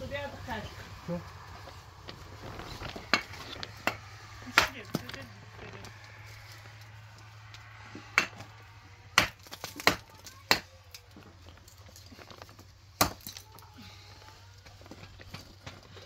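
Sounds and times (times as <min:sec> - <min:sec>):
hard knocks on masonry: 0:08.1 - 0:08.5, 0:09.2 - 0:10.7.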